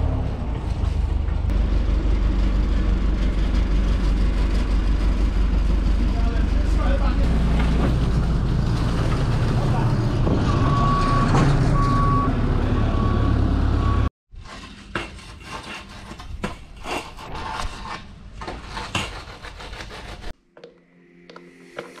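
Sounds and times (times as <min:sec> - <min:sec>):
engine running: 0:00.0 - 0:14.1
reversing alarm beeping: 0:10.5 - 0:14.1
hand tools scraping concrete: 0:14.4 - 0:20.4.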